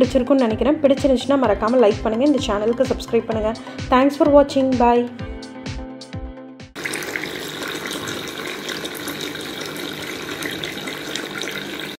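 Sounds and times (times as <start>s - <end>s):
background music: 0.0s - 6.8s
fountain splashing trickle: 6.8s - 12.0s.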